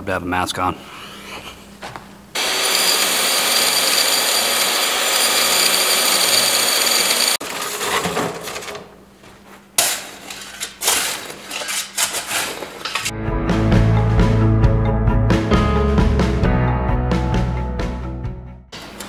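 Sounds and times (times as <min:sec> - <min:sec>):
table saw whining: 0:02.4 - 0:07.4
shovel scraping rocky dirt: 0:10.2 - 0:13.1.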